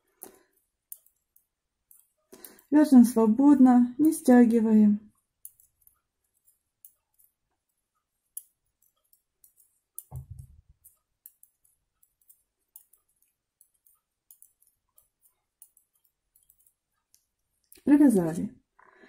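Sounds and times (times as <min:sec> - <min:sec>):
knitting needles clicking: 0:00.0 - 0:18.8
low thump: 0:10.1 - 0:10.6.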